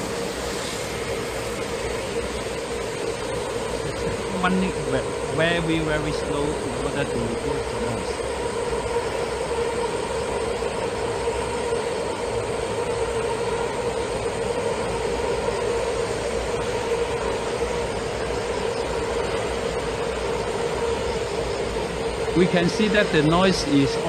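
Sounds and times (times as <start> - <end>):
rumbling hiss: 0.0 - 24.0
train tonal drone: 0.0 - 24.0.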